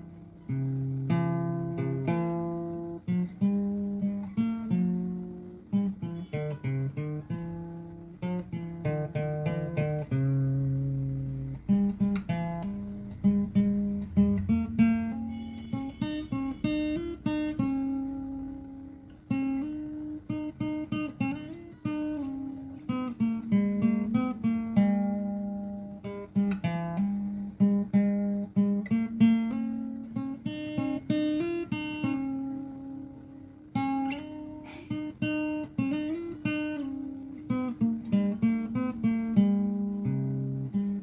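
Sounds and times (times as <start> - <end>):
acoustic guitar plucking melody: 0.0 - 41.0.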